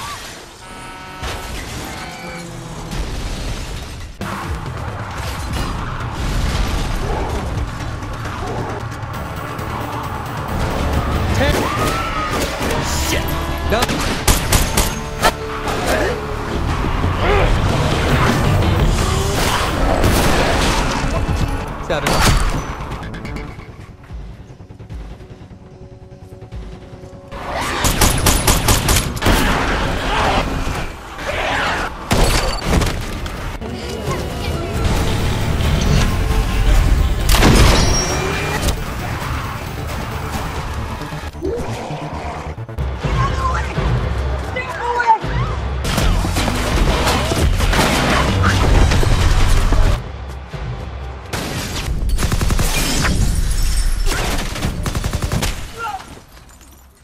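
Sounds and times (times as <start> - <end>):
chaotic noise: 4.2 - 21.8
rapid gunfire burst: 27.4 - 29.9, 52.1 - 53.1, 54.2 - 56.0.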